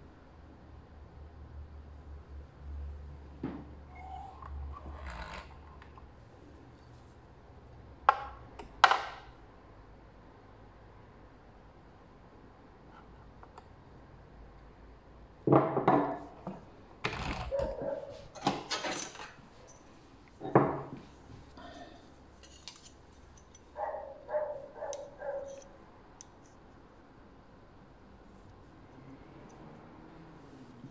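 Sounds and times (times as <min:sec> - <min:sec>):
steel ruler clattering: 0:22.4 - 0:23.7.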